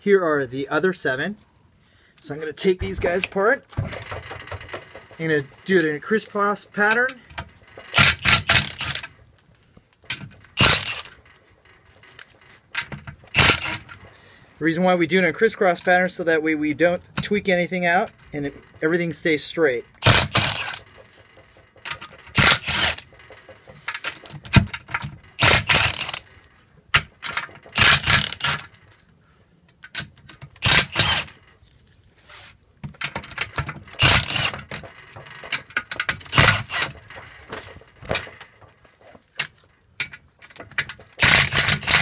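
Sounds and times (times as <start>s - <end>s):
impact driver bursts: 7.9s - 9.0s, 10.6s - 11.1s, 13.3s - 13.9s, 20.0s - 20.8s, 22.3s - 23.1s, 25.4s - 26.2s, 27.8s - 28.6s, 30.6s - 31.4s, 34.0s - 34.7s, 36.3s - 37.0s, 41.2s - 42.0s.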